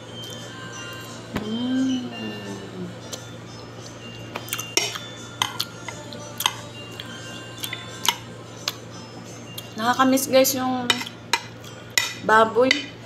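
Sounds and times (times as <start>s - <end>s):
steady low hum: 0.0s - 13.0s
metal spoon clinking on plate: 4.7s - 6.7s, 10.9s - 12.9s.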